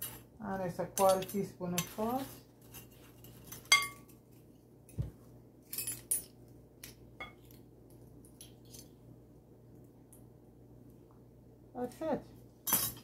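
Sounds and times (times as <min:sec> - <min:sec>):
spoons clinking on glass bowl: 0:02.7 - 0:04.1.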